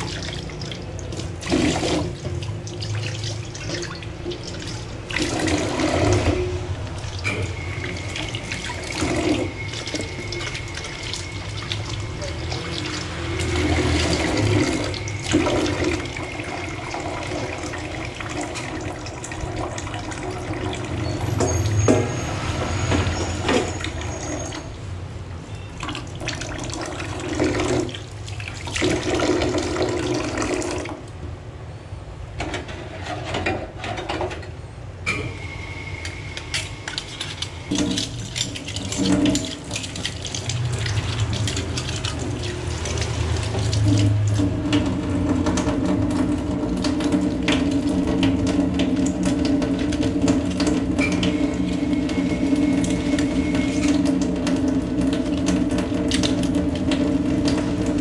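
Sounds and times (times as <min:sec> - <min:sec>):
tap water splashing into sink: 0:00.0 - 0:22.1, 0:36.9 - 0:58.0.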